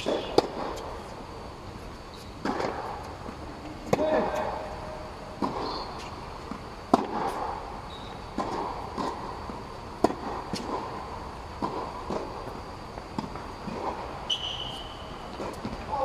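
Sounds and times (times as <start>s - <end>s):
tennis ball bouncing on court: 0.0s - 0.9s, 2.2s - 4.5s, 5.3s - 7.6s, 8.2s - 15.8s
tennis ball hit by racket: 0.0s - 0.9s, 2.4s - 3.1s, 5.4s - 7.6s, 8.3s - 11.0s.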